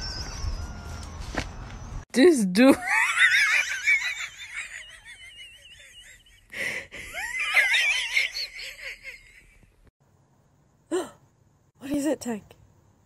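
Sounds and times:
person laughing in wheezes: 2.8 - 9.6.

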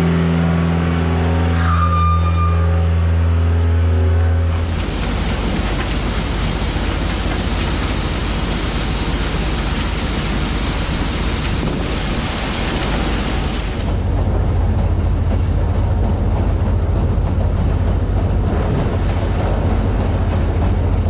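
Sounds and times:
skid steer engine running: 3.1 - 21.0
corn pouring into steel wagon: 4.4 - 14.0
corn sheller running: 4.4 - 14.1.

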